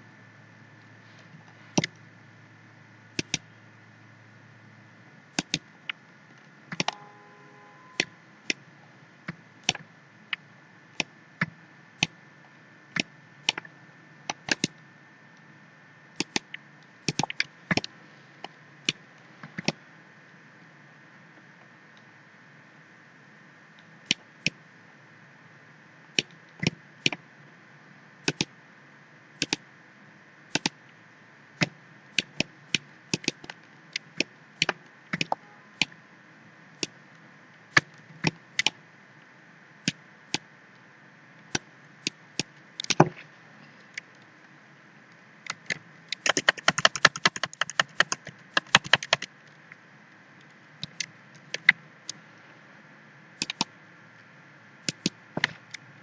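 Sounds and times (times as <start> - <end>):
faint steady hum: 0.0 - 56.0
computer mouse clicks: 1.4 - 2.0, 3.2 - 3.5, 5.4 - 6.0, 6.7 - 7.0, 14.3 - 14.8, 16.2 - 19.8, 28.2 - 28.5, 29.4 - 29.6, 30.5 - 30.8, 31.6 - 36.0, 37.7 - 38.8, 41.5 - 43.1, 45.5 - 49.6, 50.4 - 52.2, 53.4 - 53.7, 54.8 - 55.8
keyboard typing: 6.7 - 7.2, 16.2 - 17.9, 45.5 - 49.3, 53.4 - 53.7, 54.9 - 55.2.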